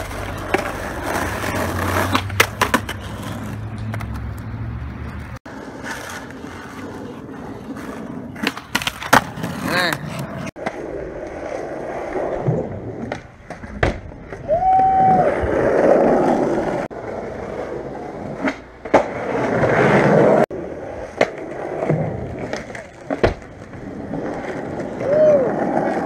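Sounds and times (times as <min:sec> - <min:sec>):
skateboard popping and landing clacks: 0:00.0 - 0:11.5, 0:12.4 - 0:14.4, 0:18.2 - 0:20.4, 0:21.0 - 0:26.0
skateboard wheels rolling on concrete: 0:00.0 - 0:26.0.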